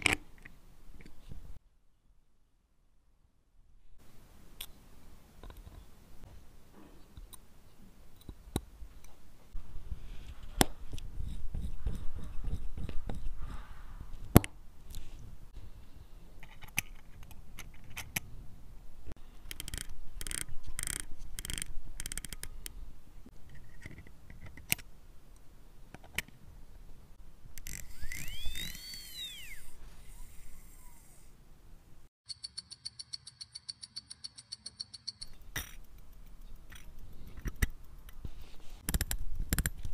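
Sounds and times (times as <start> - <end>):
watch crown clicking: 19.5 - 22.5
fingers handling watch movement: 19.5 - 22.6.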